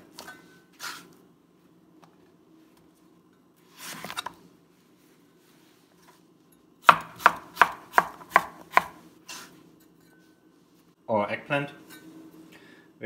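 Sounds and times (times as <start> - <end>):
cleaver chopping on plastic board: 6.9 - 9.0.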